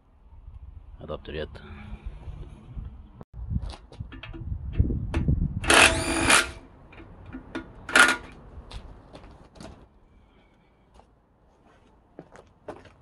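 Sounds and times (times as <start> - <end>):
metal handling clicks and knocks: 4.1 - 5.3, 6.8 - 8.4.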